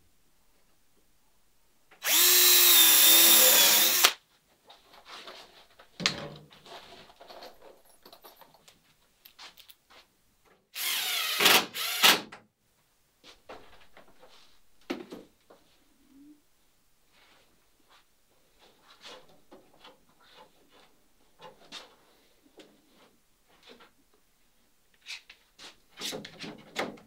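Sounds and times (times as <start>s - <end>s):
cordless drill running: 2.0s - 4.2s, 10.8s - 12.2s.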